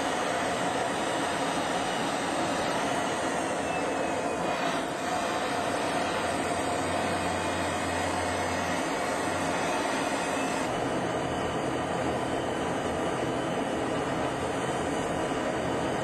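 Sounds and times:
aircraft engine and rushing air: 0:00.0 - 0:11.6.

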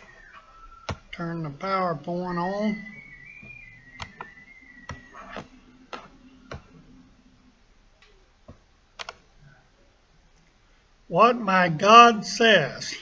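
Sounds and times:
faint low hum: 0:00.0 - 0:13.0
sharp clicks and taps: 0:03.4 - 0:06.7, 0:08.0 - 0:09.2.

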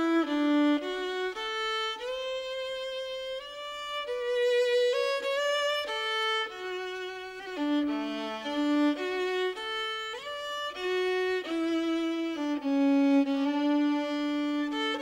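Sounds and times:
solo violin slow melody: 0:00.0 - 0:15.0.

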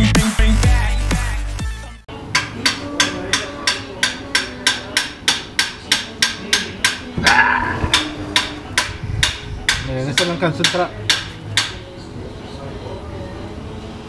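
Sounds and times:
rough metal clash: 0:02.4 - 0:11.7
hammer blows: 0:02.4 - 0:11.8.

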